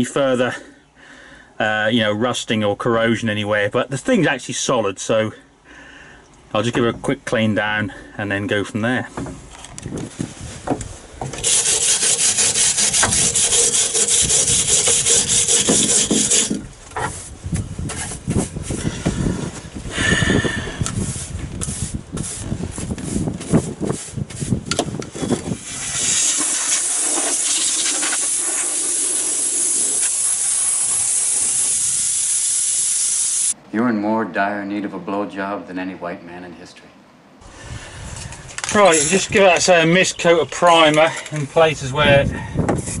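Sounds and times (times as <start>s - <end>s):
abrasive pad scrubbing metal: 11.3s - 17.3s
aerosol can spraying hiss: 25.6s - 33.6s.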